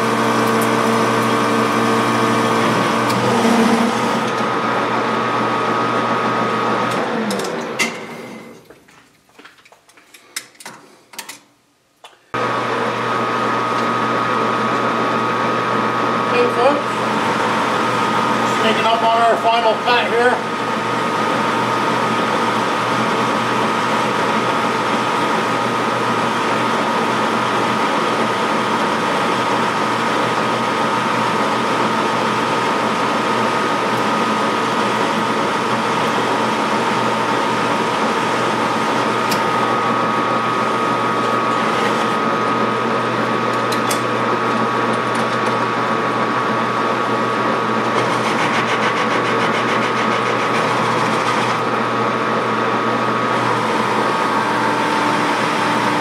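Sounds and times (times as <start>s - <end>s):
metal lathe whining: 0.0s - 8.4s, 16.3s - 44.2s, 47.8s - 56.0s.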